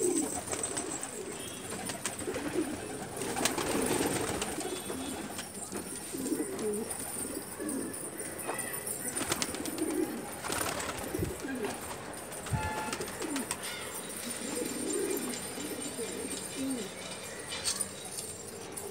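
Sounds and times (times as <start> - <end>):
pigeons cooing: 0.0 - 18.9.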